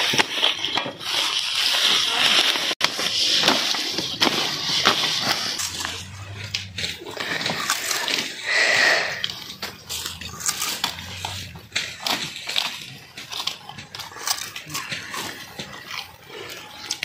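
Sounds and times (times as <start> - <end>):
chewing sugarcane crunches: 0.0 - 17.0
sugarcane rustling and crackling: 0.0 - 17.0.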